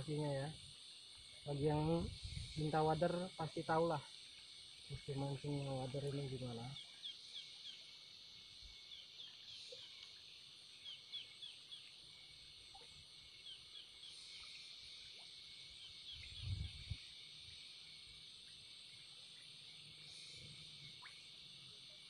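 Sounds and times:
steady high hiss: 0:00.0 - 0:22.0
small bird chirping: 0:08.8 - 0:12.0, 0:15.7 - 0:17.0.

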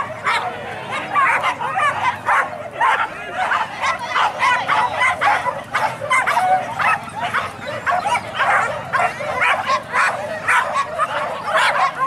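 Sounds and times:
dogs yelping and barking: 0:00.0 - 0:12.0.

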